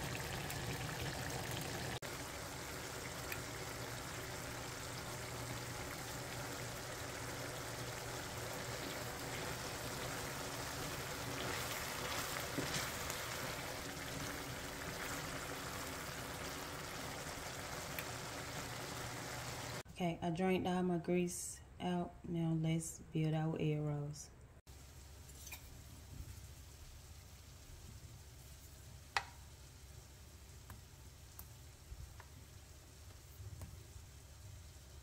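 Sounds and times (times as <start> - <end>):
meat and onion sizzling: 0.0 - 19.8.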